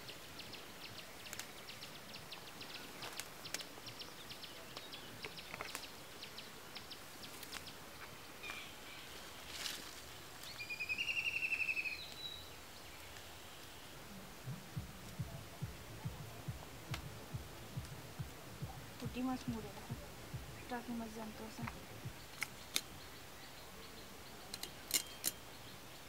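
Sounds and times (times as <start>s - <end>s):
leafy stems snapping and rustling: 1.3s - 1.6s, 2.9s - 3.7s, 4.7s - 6.0s, 7.3s - 8.6s, 9.5s - 10.6s.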